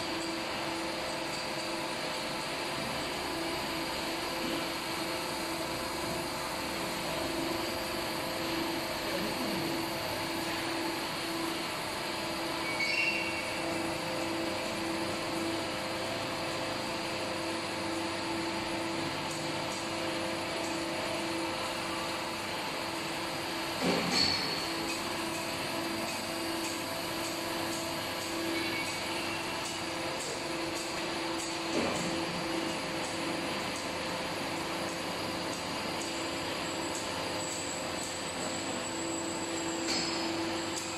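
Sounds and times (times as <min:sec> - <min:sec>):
machine squeal: 0:12.6 - 0:13.7, 0:28.3 - 0:29.6.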